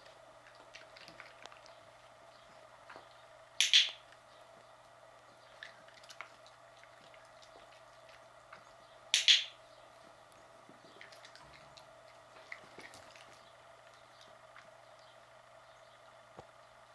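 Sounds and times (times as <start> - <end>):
dog-training clicker click: 3.6 - 4.0.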